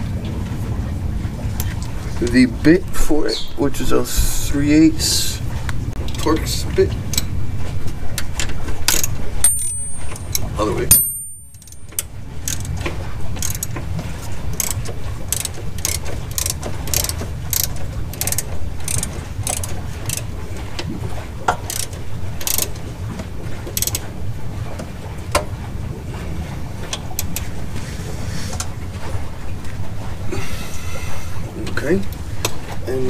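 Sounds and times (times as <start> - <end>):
steady low rumble: 0.0 - 33.0
hand ratchet clicking: 14.6 - 20.3, 21.7 - 22.7.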